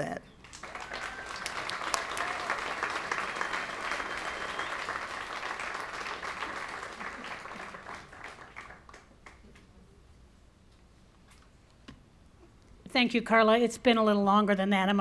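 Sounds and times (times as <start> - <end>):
audience applauding: 0.4 - 9.7.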